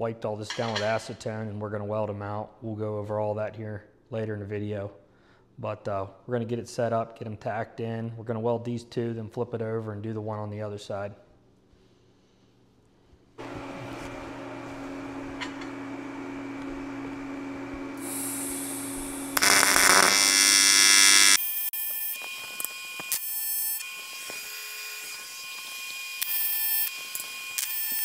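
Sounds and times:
steady hum: 13.4 - 21.4
welding arc buzzing: 13.4 - 28.0
loud hiss: 18.0 - 20.3.

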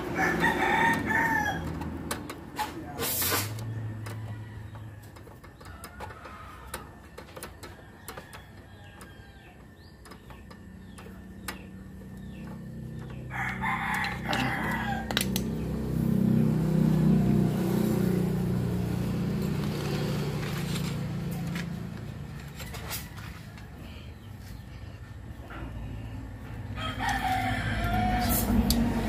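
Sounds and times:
rooster crowing: 0.0 - 1.9, 13.2 - 15.4, 26.6 - 29.0
low motor hum: 7.7 - 29.0.

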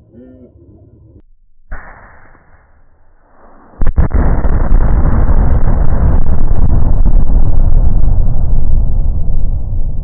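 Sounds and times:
explosion blast: 1.7 - 10.0
explosion crack: 1.7 - 10.0
rumble with crackling: 3.4 - 10.0.

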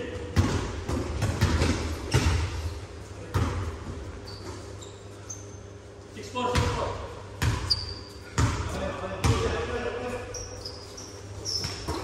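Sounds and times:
basketball bouncing on hall floor: 0.0 - 4.7, 6.4 - 12.0
short high squeaks: 4.2 - 5.7, 7.6 - 8.3, 10.2 - 12.0.

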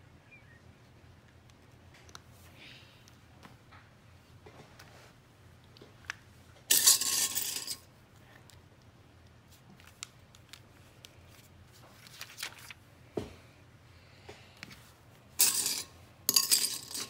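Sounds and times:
small clicks and rustles: 8.2 - 12.8.

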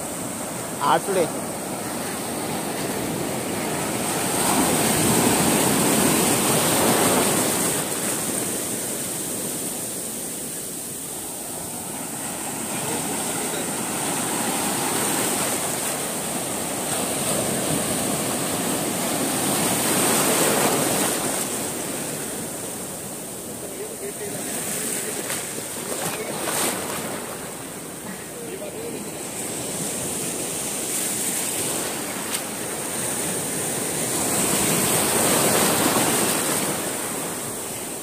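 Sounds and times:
sea surf breaking on beach: 0.0 - 38.0.

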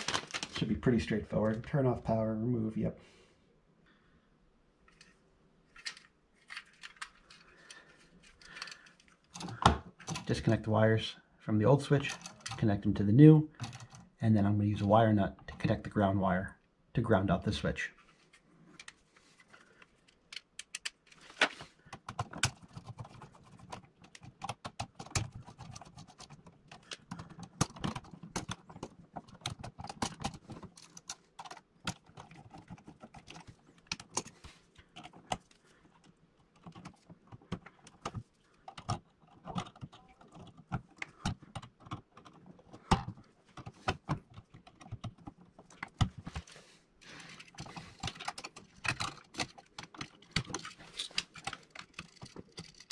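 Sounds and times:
small metal clicks and scrapes: 4.8 - 10.6, 12.0 - 12.8, 18.2 - 52.9.

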